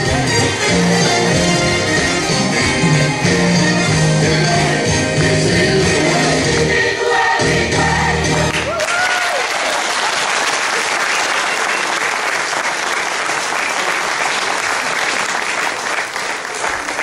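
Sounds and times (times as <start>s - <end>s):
recorded dance music: 0.0s - 8.7s
congregation applauding: 8.5s - 17.0s.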